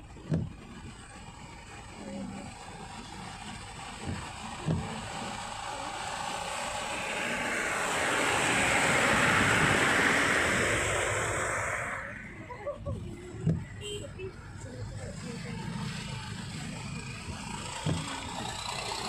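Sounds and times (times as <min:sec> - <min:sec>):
rain: 0:00.0 - 0:10.3
tyres rushing through water: 0:00.0 - 0:19.0.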